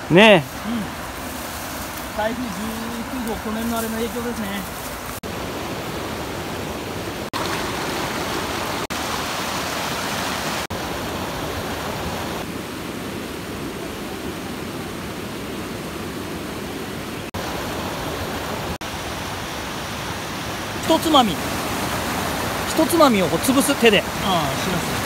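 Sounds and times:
river water rushing over rocks: 0.0 - 25.0.

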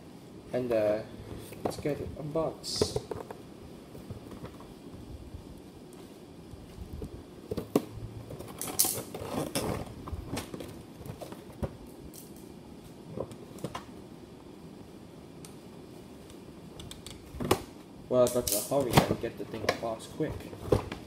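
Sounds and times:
scratchy rustling and scraping: 8.2 - 11.5.

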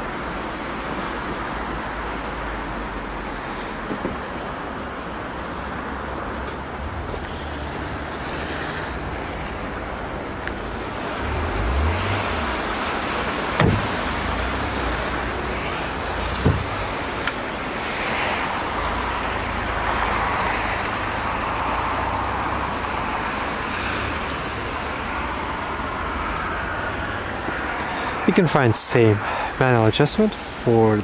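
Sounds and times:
short thumps: 13.6 - 14.0, 16.4 - 17.0.

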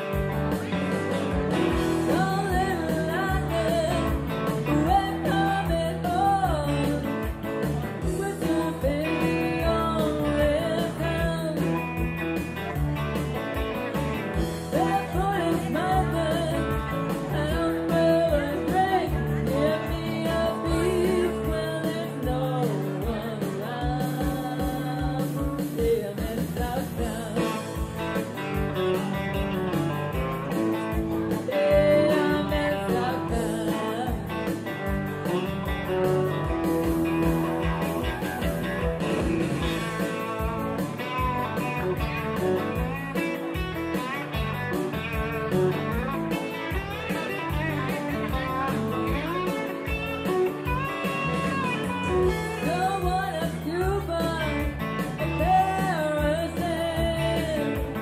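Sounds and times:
electric guitar playing: 0.0 - 58.0
woman singing: 1.6 - 12.2, 14.4 - 28.2, 30.9 - 35.5, 51.7 - 58.0.

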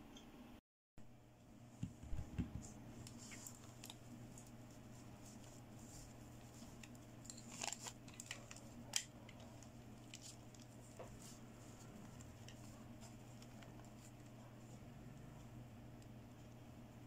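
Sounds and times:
steady low hum: 0.0 - 17.0
plastic doll clicks and rustles: 6.4 - 11.0.

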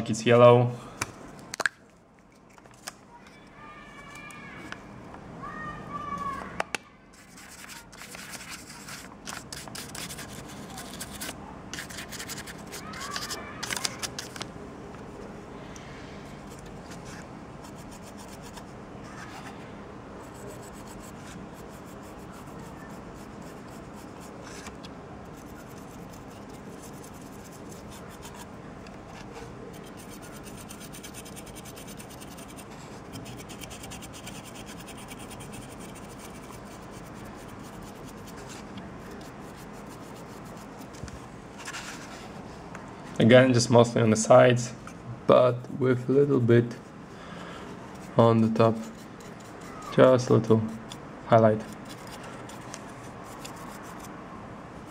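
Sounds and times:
dry brush scrubbing: 25.3 - 28.5, 29.7 - 40.9, 51.6 - 54.1.

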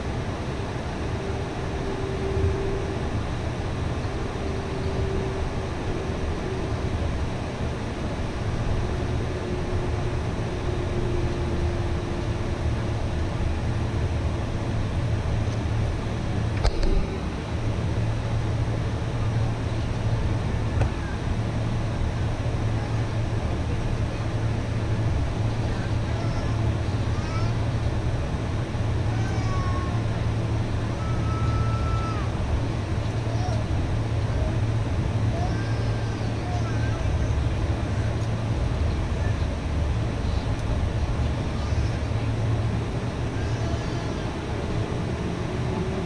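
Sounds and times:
faint whine: 0.0 - 46.0
low engine hum in cabin: 0.0 - 46.0
sharp click: 16.6 - 17.0.

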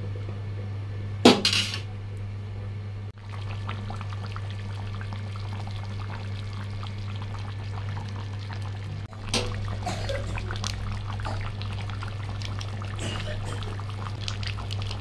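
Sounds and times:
curry bubbling and spitting: 3.2 - 15.0.

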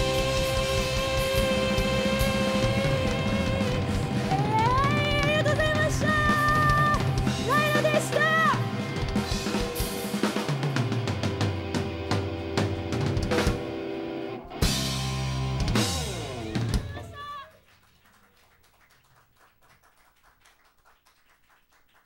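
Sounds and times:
rock band playing: 0.0 - 17.5.

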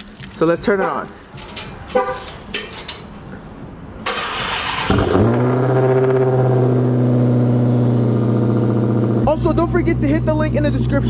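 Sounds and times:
car engine idling: 1.3 - 11.0
engine starter cranking: 4.0 - 6.4.

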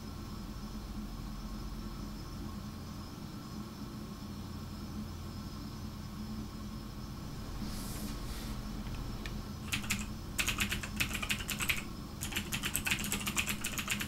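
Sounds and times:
low room hum: 0.0 - 14.0
typing on a keyboard: 9.7 - 14.0.

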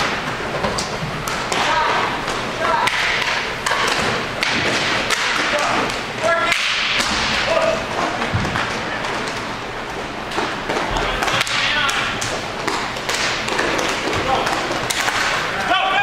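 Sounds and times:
sticks and puck clacking on boards: 0.0 - 16.0
players shouting: 14.0 - 16.0.

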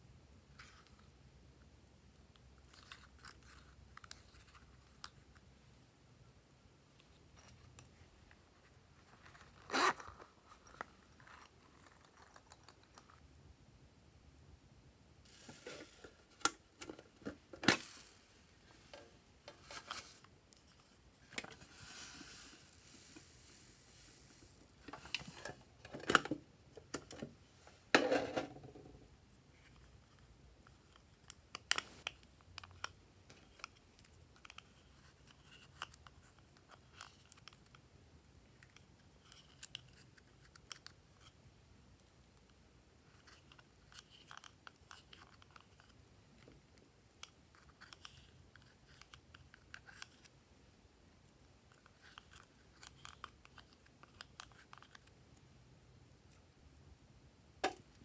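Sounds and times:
rustling: 15.2 - 25.7.

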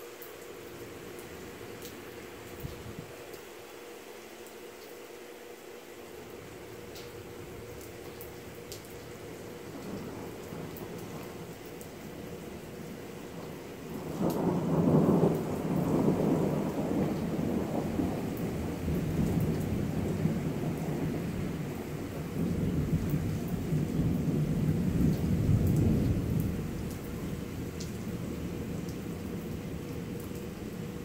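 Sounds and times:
steady rain: 0.0 - 31.0
thunder rumbling: 6.6 - 31.0.

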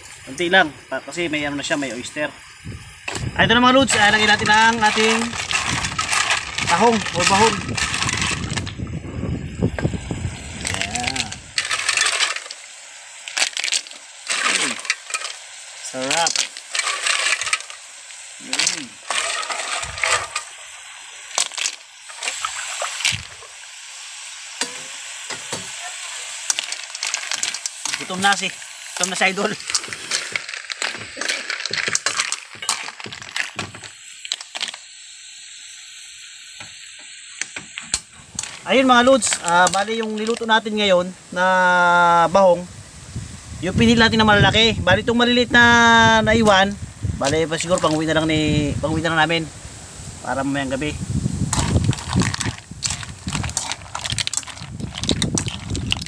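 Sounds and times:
person speaking: 3.4 - 8.4, 10.6 - 11.5, 14.3 - 14.9, 15.8 - 16.6, 18.4 - 20.3, 25.6 - 32.0, 38.4 - 41.2, 46.0 - 49.2
mussel shells clattering into metal pan: 3.8 - 8.7, 10.6 - 12.6, 13.3 - 17.9, 18.6 - 20.6, 21.3 - 23.5, 26.3 - 34.8, 38.3 - 40.4, 47.2 - 48.1, 51.5 - 56.0.

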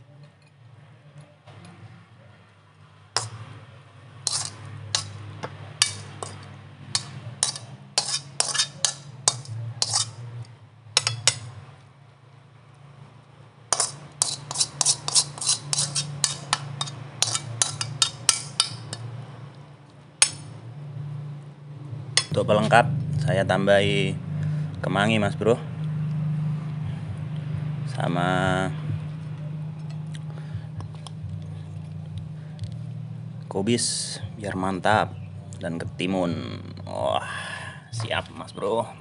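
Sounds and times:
metal spatula scraping in wok: 3.2 - 3.4, 4.2 - 5.2, 5.8 - 10.3, 11.0 - 11.5, 13.7 - 19.1.

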